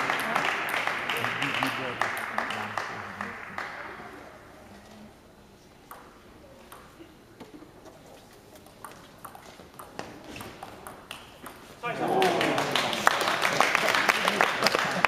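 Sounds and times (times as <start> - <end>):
table tennis ball clicking: 8.6 - 11.7.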